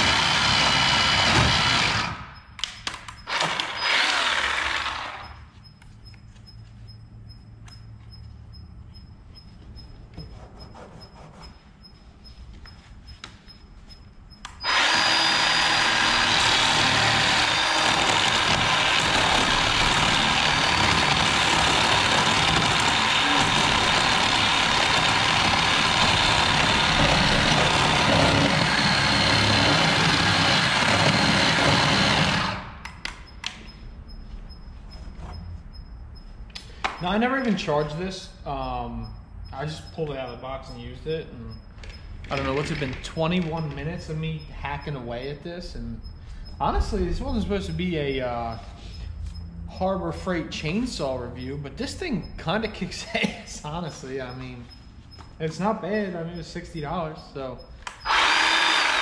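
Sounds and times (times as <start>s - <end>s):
battery chainsaw cutting wood: 0.0s - 2.3s, 3.3s - 5.2s, 14.6s - 32.7s, 58.0s - 59.0s.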